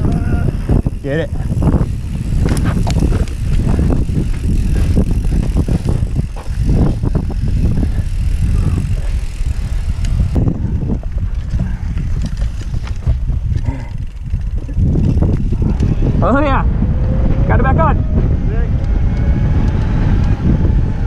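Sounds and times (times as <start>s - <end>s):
tyre noise on dirt: 0.0s - 16.2s
bike rattling and knocking: 0.0s - 17.5s
wind rumble on microphone: 0.0s - 21.0s.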